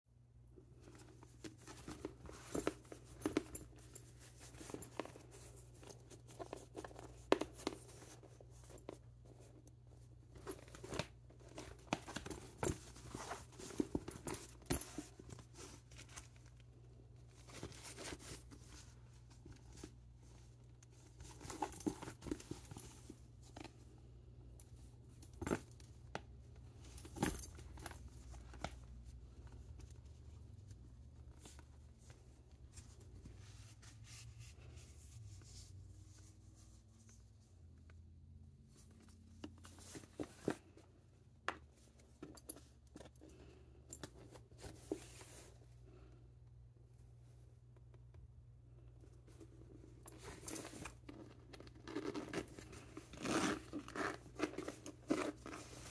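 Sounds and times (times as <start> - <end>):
rustles and scrapes of backpack: 0.6 - 37.9, 38.6 - 46.4, 48.8 - 55.9.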